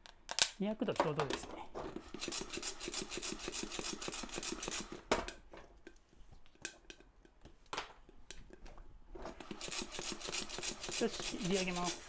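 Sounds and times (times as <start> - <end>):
coffee beans rattling in pot: 9.4 - 12.0.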